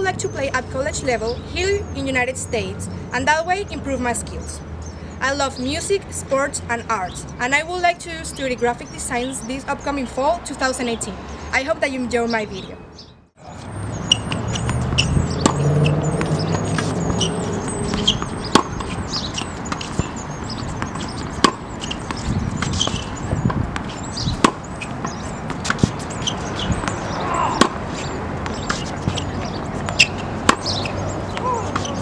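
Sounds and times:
outdoor background noise: 0:00.0 - 0:32.0
tennis ball bouncing: 0:13.8 - 0:32.0
racket hitting tennis ball: 0:14.1 - 0:32.0.

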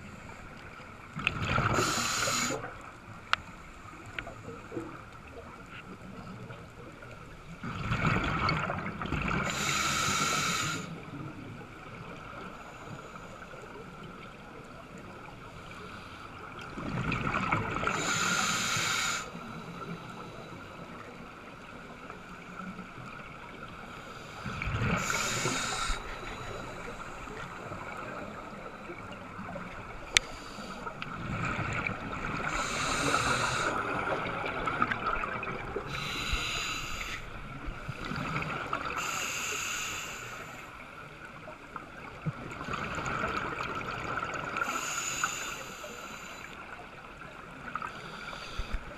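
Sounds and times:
exhaled bubbles gurgling underwater: 0:00.0 - 0:48.9
steady regulator hiss: 0:01.6 - 0:04.7, 0:09.4 - 0:11.0, 0:17.8 - 0:31.1, 0:31.8 - 0:40.8, 0:44.5 - 0:46.7, 0:47.6 - 0:48.9.

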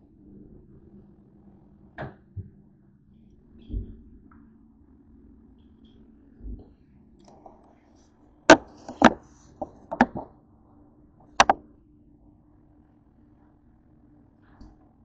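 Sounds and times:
faint low hum: 0:00.0 - 0:15.0
sharp clicks and knocks: 0:08.5 - 0:10.3, 0:11.3 - 0:11.6.

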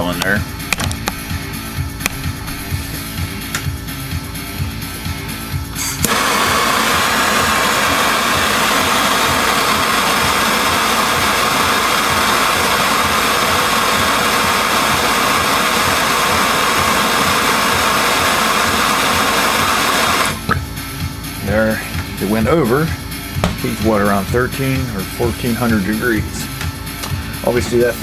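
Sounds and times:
gas torch hissing: 0:05.6 - 0:20.6, 0:21.4 - 0:28.0.

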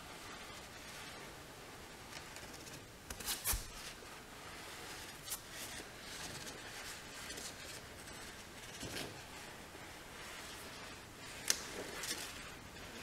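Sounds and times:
paper banner sliding and rustling: 0:03.2 - 0:13.0.

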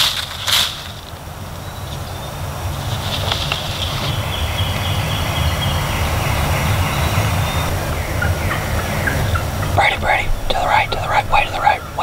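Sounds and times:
steady low rumble: 0:00.0 - 0:12.0
turkey gobbling: 0:05.8 - 0:12.0.

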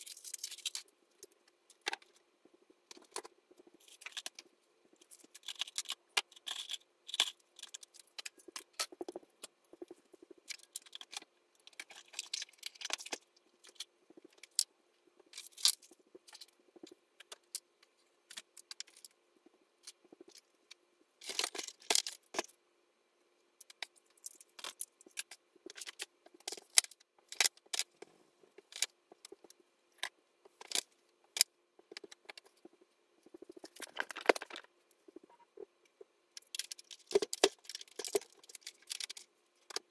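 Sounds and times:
faint steady hum: 0:00.0 - 0:39.9
small hard objects clattering: 0:33.4 - 0:34.7, 0:36.4 - 0:39.9.

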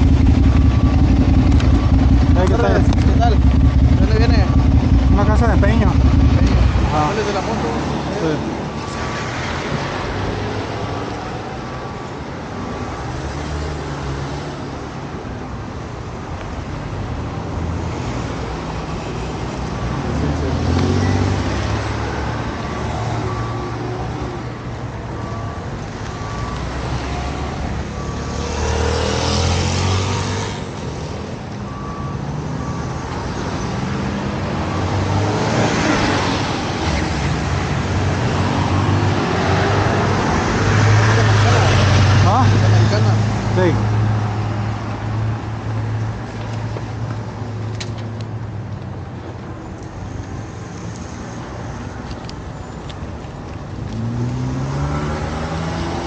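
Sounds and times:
repeating electronic beep: 0:00.0 - 0:11.9, 0:25.1 - 0:37.3
vehicles passing: 0:00.0 - 0:56.0.

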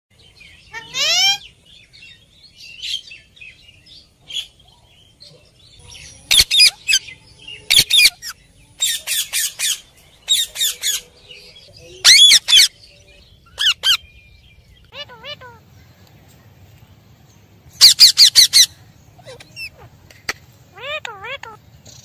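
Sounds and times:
parakeet calling: 0:00.5 - 0:01.6, 0:05.8 - 0:11.1, 0:12.0 - 0:15.7, 0:17.7 - 0:20.0, 0:20.7 - 0:21.7.

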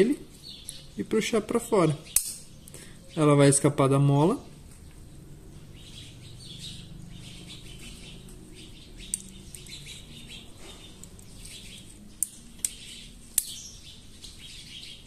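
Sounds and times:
birds chirping: 0:00.0 - 0:15.0
small metallic clicks: 0:02.2 - 0:02.4.

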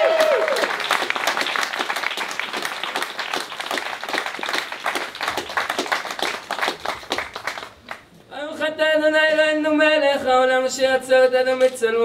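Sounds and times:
crowd clapping: 0:00.0 - 0:08.1.

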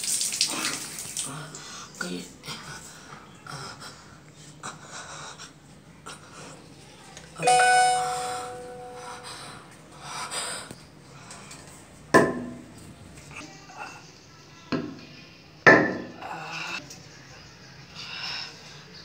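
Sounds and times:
bell-like ding: 0:07.4 - 0:09.2.

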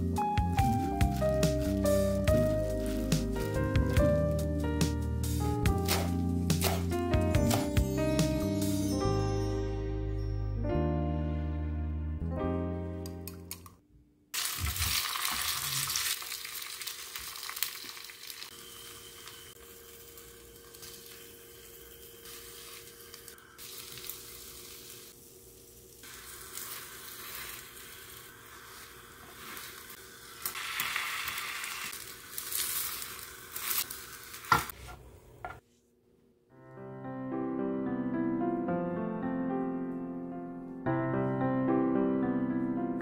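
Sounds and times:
egg sizzling in a pan: 0:14.4 - 0:34.8.

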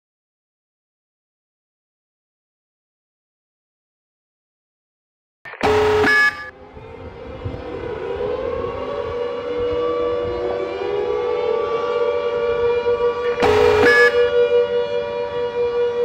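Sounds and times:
air-raid siren wailing: 0:05.6 - 0:16.0
harsh siren blast: 0:05.6 - 0:16.0.

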